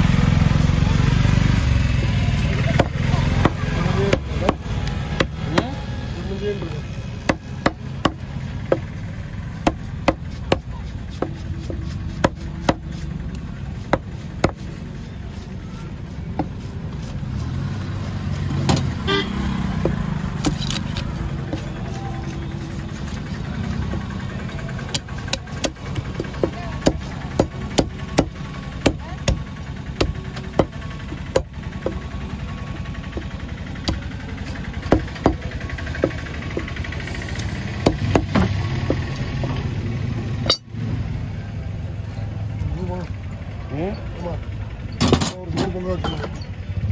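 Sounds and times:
cleaver chopping on wooden block: 2.7 - 5.8, 7.2 - 8.9, 9.5 - 13.1, 13.8 - 14.7, 16.3 - 17.4, 24.9 - 32.0, 33.1 - 34.1, 34.9 - 36.8, 37.4 - 39.7.

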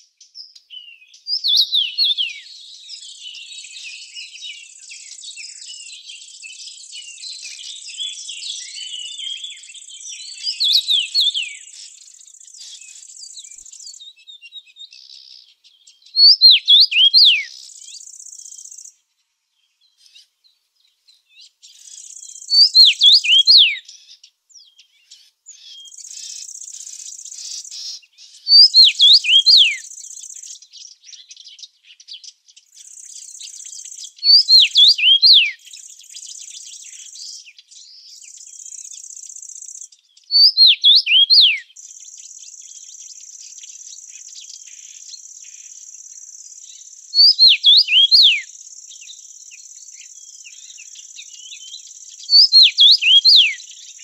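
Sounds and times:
songbird whistling: 0.4 - 15.4, 16.1 - 18.9, 21.7 - 24.0, 25.5 - 31.4, 32.7 - 54.0.

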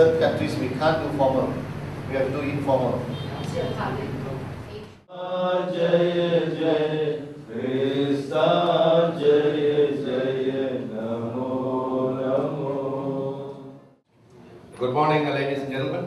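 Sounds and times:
group chanting a prayer: 5.1 - 13.9.

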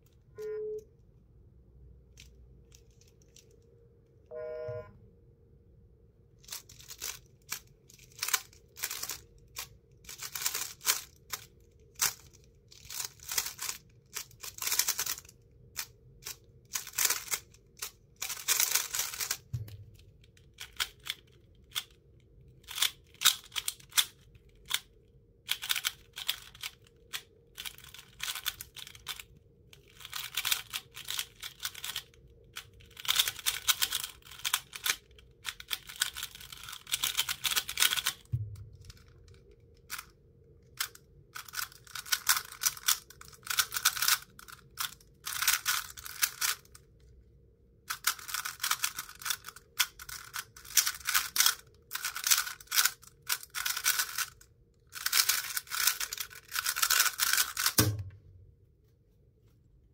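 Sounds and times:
speed cube clicking turns: 6.4 - 22.0, 22.6 - 24.9, 25.5 - 39.1, 40.7 - 46.8, 47.9 - 57.9.

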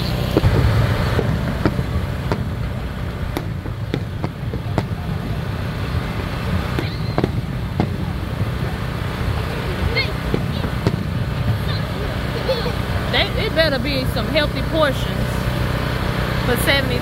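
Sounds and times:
fireworks pops and bangs: 0.0 - 13.1
steady low rumble: 0.0 - 17.0.

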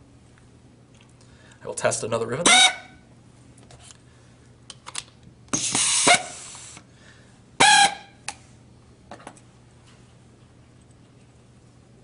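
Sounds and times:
pneumatic tool air noise: 5.5 - 6.8
whistling air hiss: 5.6 - 6.8.

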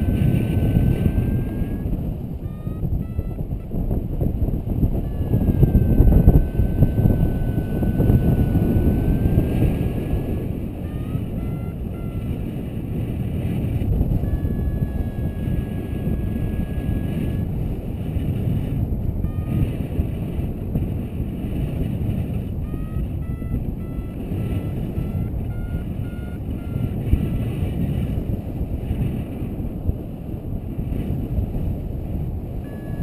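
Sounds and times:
wind rushing over microphone: 0.0 - 33.0
faint electronic beeps and tones: 0.5 - 3.7, 5.1 - 12.3, 19.2 - 19.8, 22.6 - 27.0, 32.6 - 33.0.

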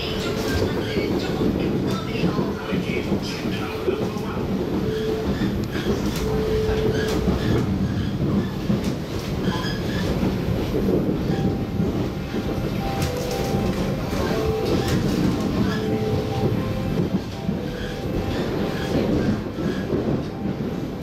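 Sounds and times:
faint train whine: 0.0 - 21.0
train wheels rumbling on track: 0.0 - 21.0
track clicks: 10.2 - 20.6.

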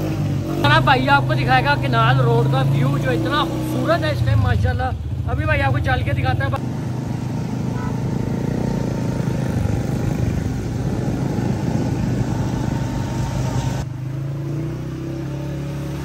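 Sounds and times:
motorcycle engine running: 0.0 - 16.0
wet tyres on road: 0.0 - 16.0
wind rushing: 8.2 - 13.8.

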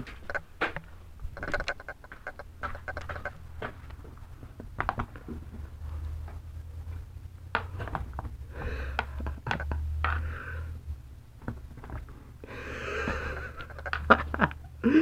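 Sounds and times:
low rumble of phone handling: 0.0 - 14.6
cat toy clicking and rattling: 8.9 - 10.2.

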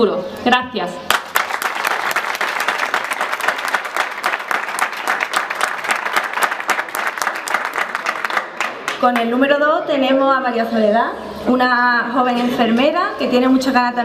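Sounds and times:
crowd applauding: 1.1 - 9.4.

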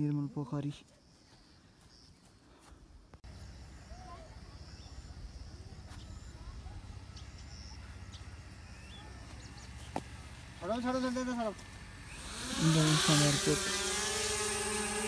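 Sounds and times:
faint bird chirps: 0.7 - 2.7, 3.3 - 10.0.

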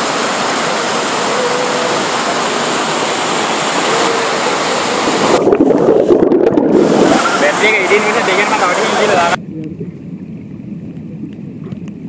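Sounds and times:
water rushing over rocks: 0.0 - 12.0
muffled bubbly underwater sound: 4.9 - 12.0.

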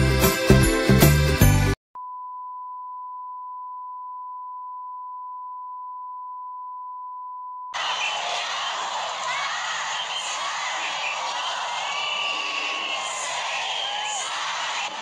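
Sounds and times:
music: 0.0 - 1.8
steady test tone beep: 2.0 - 7.7
loud noise: 7.8 - 15.0.

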